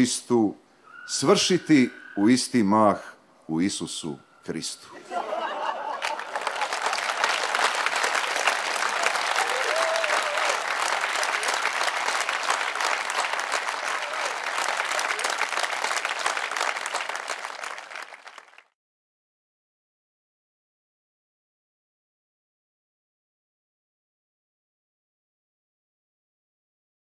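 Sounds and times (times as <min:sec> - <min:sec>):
audience applauding: 0:05.3 - 0:18.8.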